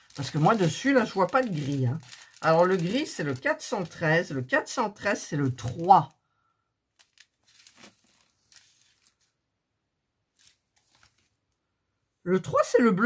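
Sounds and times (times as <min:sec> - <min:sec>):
plastic bags crinkling: 0:00.0 - 0:06.1, 0:06.9 - 0:09.3, 0:10.3 - 0:11.4.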